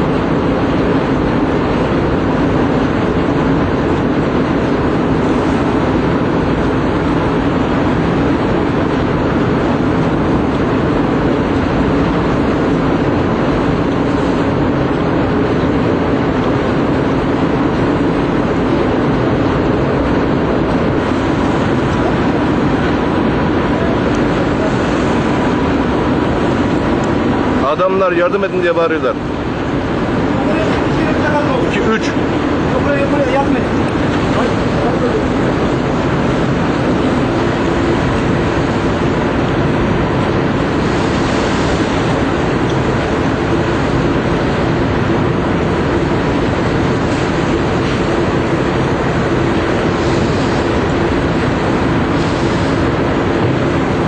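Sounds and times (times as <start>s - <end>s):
loud deep steady noise: 0.0s - 54.0s
loud rushing noise: 0.0s - 54.0s.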